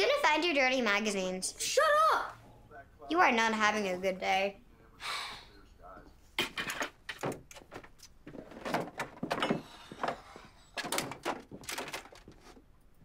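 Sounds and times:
objects knocking and scraping on shelves: 6.4s - 12.7s.

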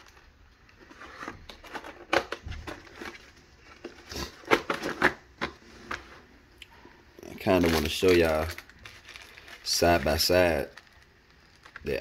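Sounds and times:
plastic cases clicking and knocking: 1.4s - 3.2s, 3.8s - 5.6s
crinkling: 6.7s - 12.0s.

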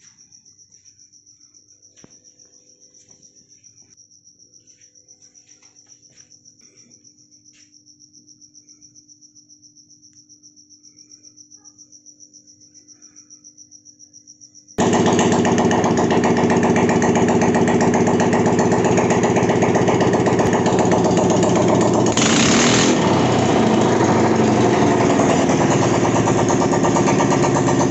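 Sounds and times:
crickets chirping: 0.0s - 22.5s
scooter engine running: 14.8s - 27.9s.

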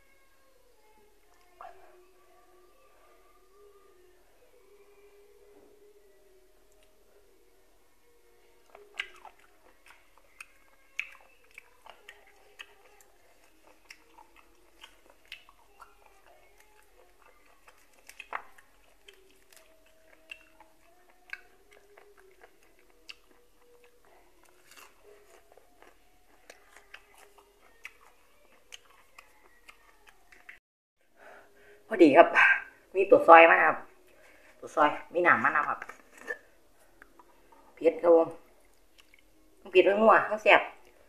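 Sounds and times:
chewing with soft crunches: 8.2s - 30.6s, 38.4s - 39.6s.

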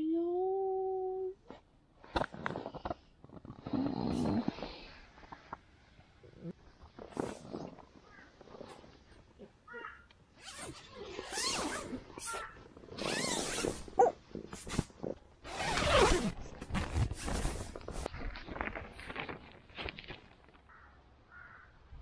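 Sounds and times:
tent zipper: 2.0s - 5.5s, 6.4s - 9.0s, 10.3s - 18.6s
tent fabric rustling: 6.7s - 9.3s, 10.3s - 20.5s.

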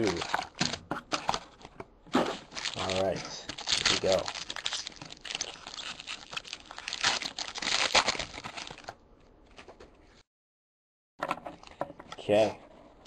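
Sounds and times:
foil wrapper crinkling and tearing: 0.0s - 1.4s, 2.4s - 9.0s.

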